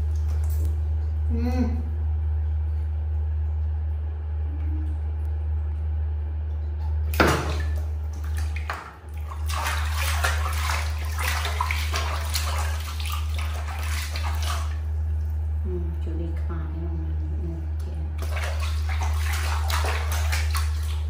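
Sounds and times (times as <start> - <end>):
water splashing in a tub: 0.0 - 1.3, 6.2 - 15.6, 17.7 - 21.0
steady low hum: 0.0 - 21.0.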